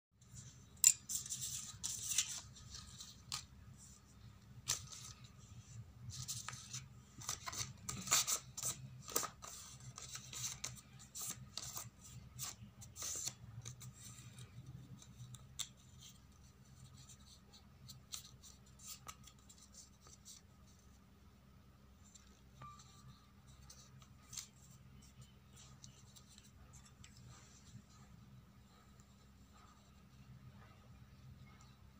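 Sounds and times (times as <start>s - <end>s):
paper crinkling and rustling: 1.1s - 20.5s.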